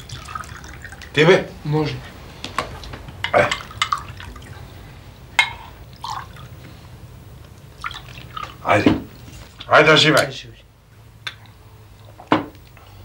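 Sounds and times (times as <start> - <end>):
drink pouring into glasses: 0.0 - 1.2, 3.3 - 4.6, 5.4 - 6.6, 7.8 - 8.7
glassware and cutlery clinking: 3.2 - 4.1, 5.4 - 6.2.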